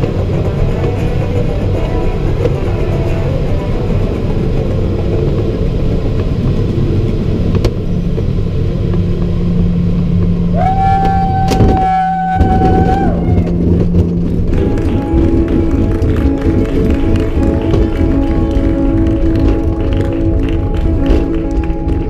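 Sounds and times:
cockpit airflow rumble: 0.0 - 22.0.

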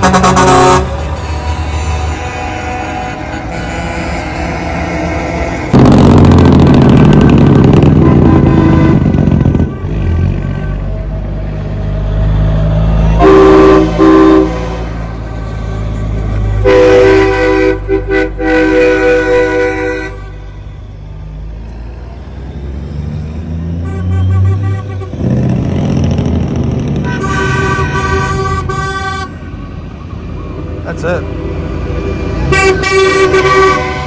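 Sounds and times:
truck air horns blasting: 0.0 - 6.4, 7.2 - 11.2, 13.0 - 20.8, 23.7 - 25.5, 26.8 - 29.7, 32.4 - 34.0
diesel truck engine rumble: 0.0 - 34.0.

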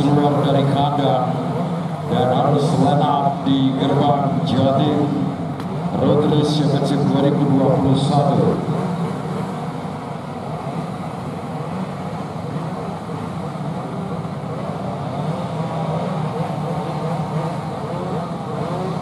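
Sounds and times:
motorcycle engines revving: 0.0 - 19.0.

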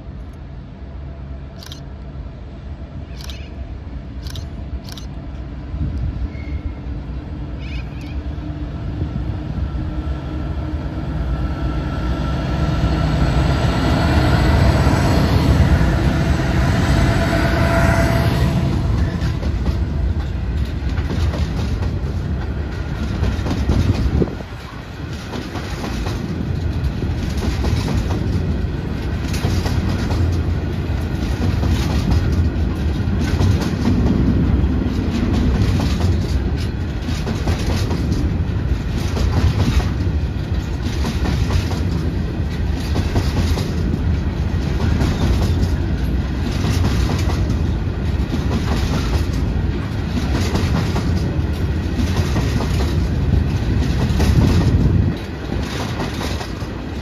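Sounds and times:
train rumbling past: 0.0 - 57.0
wheels clicking over rail joints: 18.9 - 57.0.

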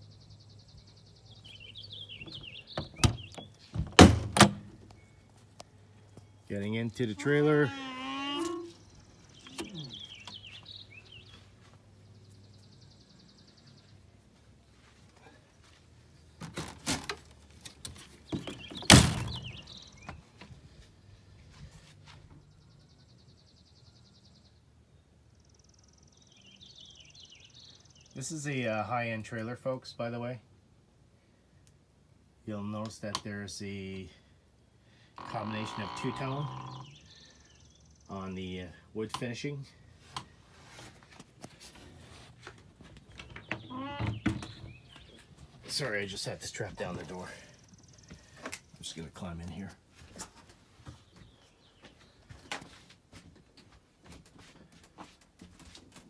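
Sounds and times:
bird chirps: 0.0 - 3.8, 6.1 - 14.0, 18.3 - 20.2, 35.2 - 38.3, 43.1 - 46.1
birds chirping: 0.0 - 30.4, 32.5 - 52.9
door latch clicks and clunks: 2.3 - 4.7, 18.8 - 19.6
door thunk: 3.8 - 4.7.

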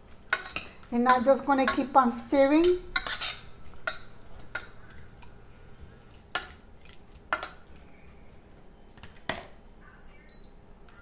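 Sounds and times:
stirring in saucepan: 0.0 - 8.6
metal utensil clinking on pan: 0.3 - 1.9.

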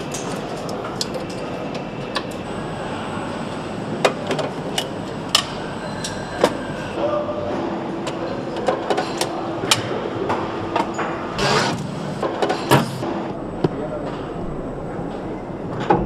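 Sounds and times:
machinery rumble: 9.5 - 15.9.

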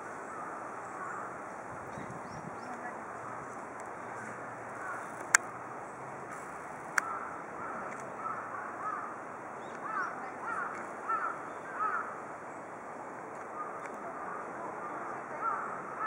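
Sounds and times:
sharp clicks: 5.1 - 5.5, 6.9 - 7.1.

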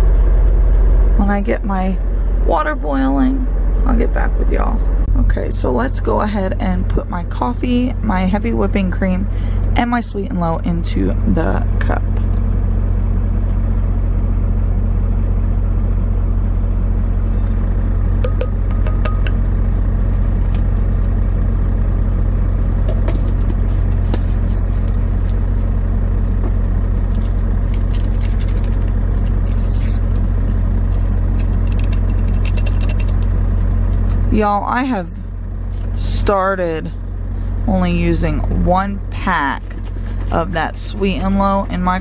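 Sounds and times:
road noise inside cab: 0.0 - 42.0
truck engine rumble: 0.0 - 42.0.

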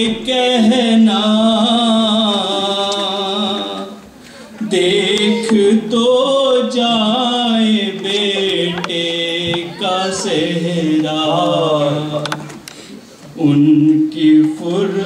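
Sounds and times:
man chanting a lament: 0.0 - 4.0, 4.6 - 12.4, 13.4 - 15.0.

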